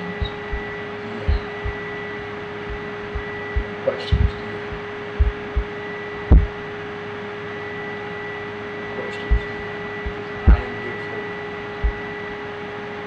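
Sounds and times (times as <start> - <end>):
soft low thumps: 0.0 - 1.9, 2.6 - 6.6, 9.3 - 10.7, 11.8 - 12.1
steady two-tone hum: 0.0 - 13.0.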